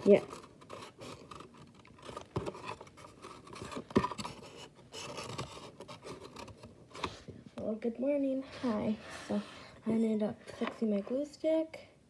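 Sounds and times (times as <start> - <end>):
cardboard scraping and rubbing: 0.0 - 7.3, 8.5 - 10.7.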